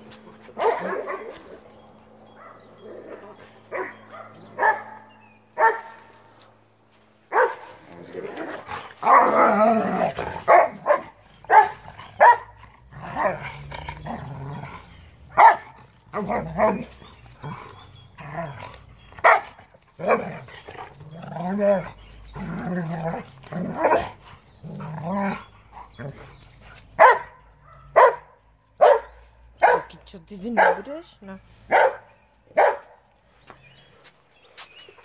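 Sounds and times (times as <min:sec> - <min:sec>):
dogs growling: 0:00.0 - 0:05.0, 0:07.4 - 0:28.2
dogs barking and yipping: 0:00.0 - 0:06.4, 0:07.2 - 0:35.0.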